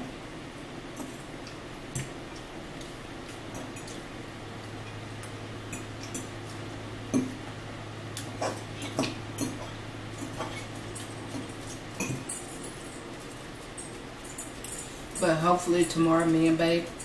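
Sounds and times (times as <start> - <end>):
steady low hum: 0.0 - 17.0
forks clinking against bowls: 3.5 - 4.0, 8.2 - 17.0.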